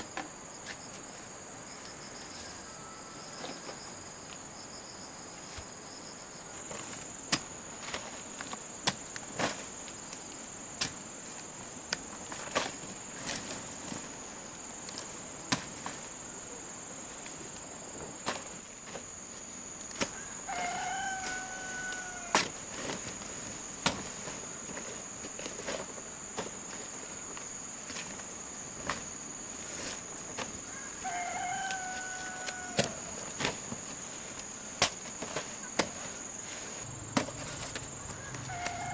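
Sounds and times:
insects droning: 0:00.0 - 0:38.9
rooster crowing: 0:20.2 - 0:22.4, 0:30.7 - 0:33.2, 0:38.1 - 0:38.9.

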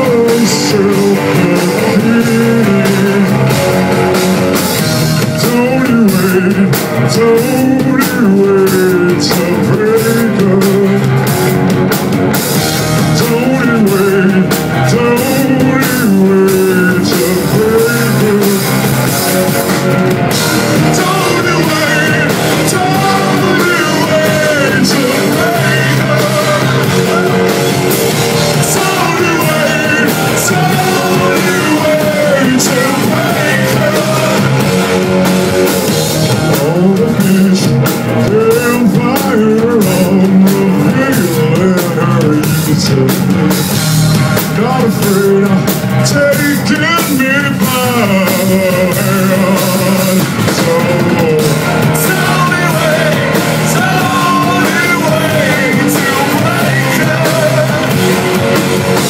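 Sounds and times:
man singing: 0:00.0 - 0:11.6, 0:12.8 - 0:59.0
rock band playing live: 0:00.0 - 0:59.0.

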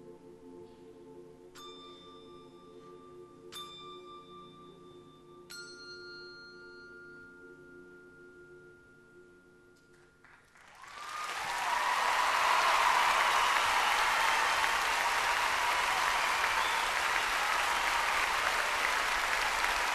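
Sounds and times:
audience applause: 0:10.6 - 0:19.9.

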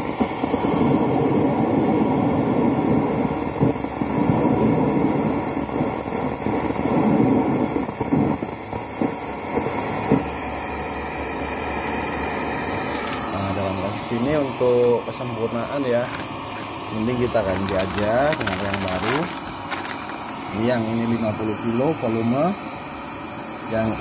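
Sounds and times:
scratchy crackling speaker noise: 0:12.7 - 0:20.9.

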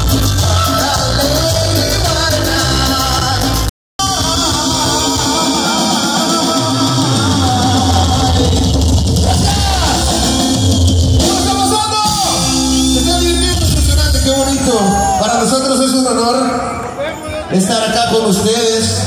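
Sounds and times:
man singing: 0:00.0 - 0:10.5
live rock band playing: 0:00.0 - 0:15.9.

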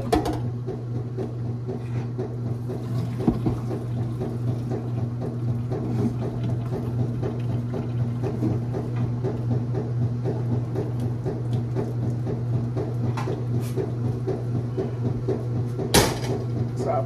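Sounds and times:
steady low hum: 0:00.0 - 0:17.0
hot water splashing into sink: 0:02.7 - 0:08.9.

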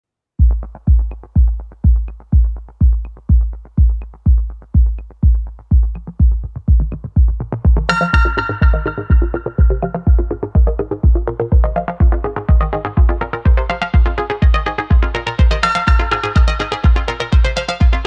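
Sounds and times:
electronic dance music: 0:00.4 - 0:18.0
kick drum beat: 0:00.4 - 0:18.0
bright synth chord: 0:07.9 - 0:10.8.

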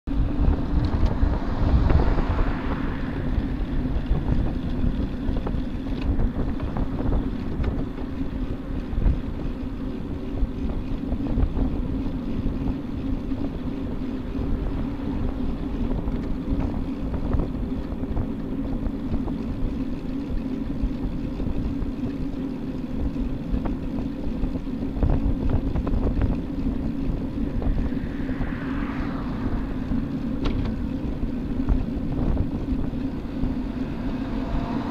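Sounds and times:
road rumble: 0:00.0 - 0:34.9
car passing: 0:00.1 - 0:05.9, 0:13.4 - 0:17.0, 0:26.6 - 0:34.9
wind rushing over microphone: 0:00.1 - 0:34.9.

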